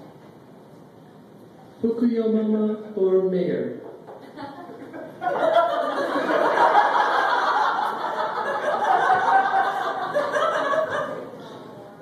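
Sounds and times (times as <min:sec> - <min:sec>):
woman laughing: 0:04.2 - 0:11.4
audience laughing: 0:04.2 - 0:11.7.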